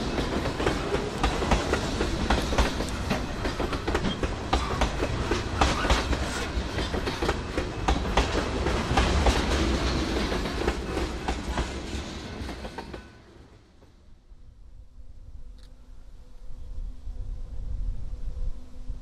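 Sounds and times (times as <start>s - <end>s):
train wheels clicking on rail joints: 0.0s - 14.0s
freight train rumble: 0.0s - 15.4s.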